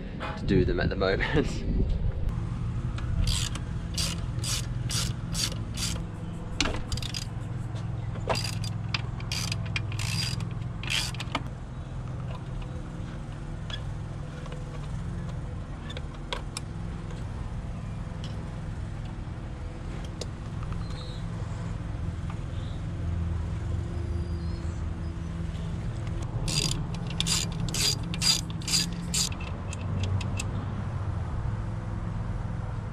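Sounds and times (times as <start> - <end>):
socket ratchet clicking: 3.2 - 6.1, 6.8 - 7.4, 8.3 - 11.5, 26.2 - 30.5.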